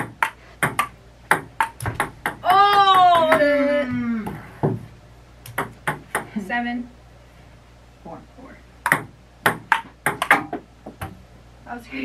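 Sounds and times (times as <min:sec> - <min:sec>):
table tennis ball clicking: 0:00.0 - 0:02.4, 0:05.4 - 0:06.3, 0:08.8 - 0:11.1
person crying out: 0:02.4 - 0:04.5.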